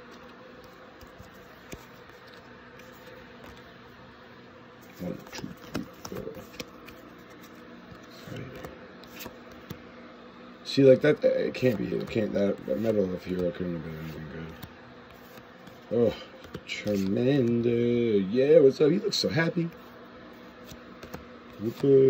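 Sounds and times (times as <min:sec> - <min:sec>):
trading cards being flipped: 0:00.0 - 0:03.8, 0:04.8 - 0:09.9, 0:11.5 - 0:17.6, 0:19.7 - 0:22.0
steady low hum: 0:00.0 - 0:22.0.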